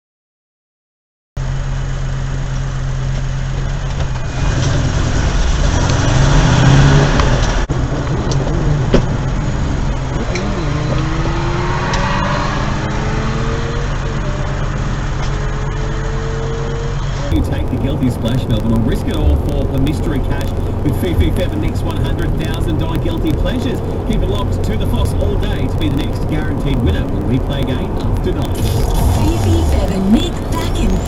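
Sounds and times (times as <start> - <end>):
engine accelerating: 1.4 - 31.0
road and engine noise: 1.4 - 31.0
steady low hum: 17.2 - 31.0.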